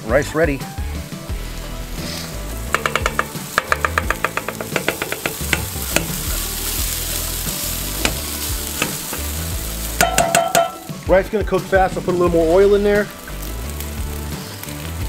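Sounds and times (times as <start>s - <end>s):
rice sizzling on griddle: 0.0s - 15.0s
sharp taps: 2.7s - 6.3s.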